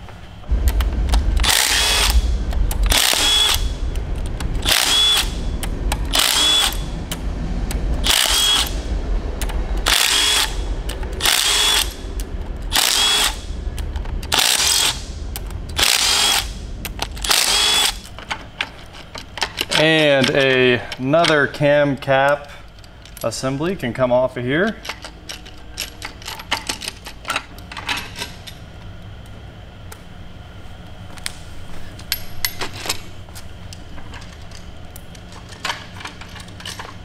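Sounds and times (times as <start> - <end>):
cordless driver whirring: 2.9 - 3.7, 4.6 - 5.4, 6.1 - 6.8, 8.0 - 8.8, 9.8 - 10.6, 11.2 - 12.0, 12.7 - 13.4, 15.8 - 16.6, 17.2 - 18.0.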